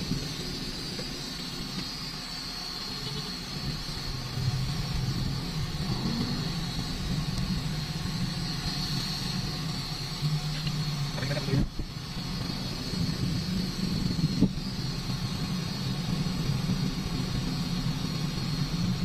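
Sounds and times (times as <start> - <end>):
car engine and road noise: 0.0 - 19.0.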